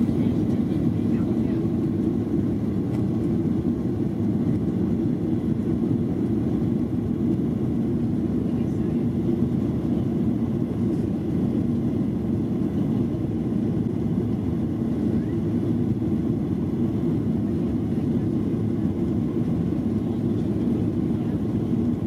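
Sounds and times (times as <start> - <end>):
airplane cabin engine rumble: 0.0 - 22.0.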